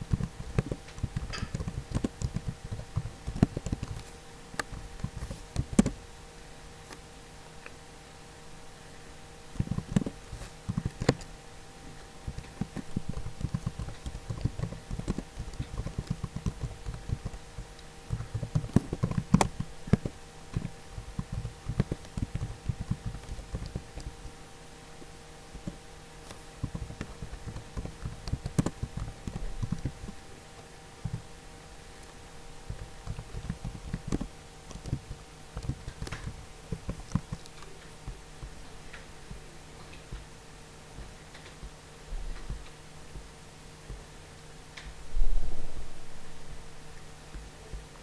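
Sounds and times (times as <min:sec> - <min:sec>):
computer keyboard typing: 0:00.0 - 0:06.0, 0:09.5 - 0:11.3, 0:12.2 - 0:24.4, 0:25.6 - 0:31.3, 0:32.0 - 0:40.3
faint electrical hum: 0:00.0 - 0:48.0.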